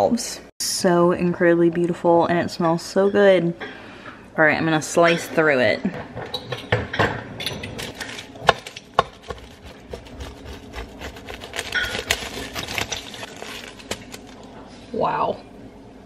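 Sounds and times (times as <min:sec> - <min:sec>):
crackling and scraping: 0:07.5 - 0:14.6
pizza cutter rolling through crust: 0:07.7 - 0:14.4.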